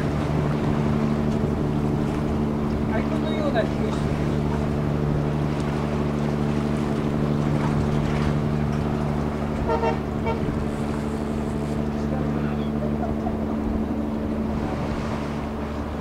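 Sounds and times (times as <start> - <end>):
boat engine running: 0.0 - 16.0
boat horn toot: 8.4 - 13.9.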